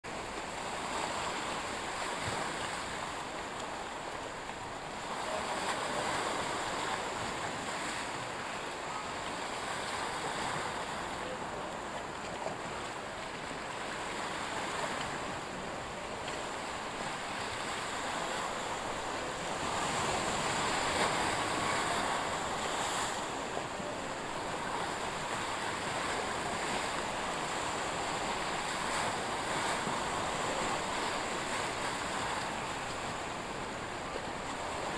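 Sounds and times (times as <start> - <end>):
sea waves washing in: 0.0 - 34.9
wind: 0.0 - 34.9.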